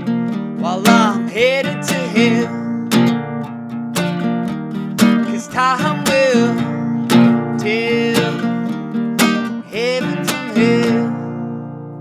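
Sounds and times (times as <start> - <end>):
acoustic guitar strumming: 0.0 - 12.0
man singing wordless notes: 0.6 - 3.0, 5.2 - 8.7, 9.6 - 11.6.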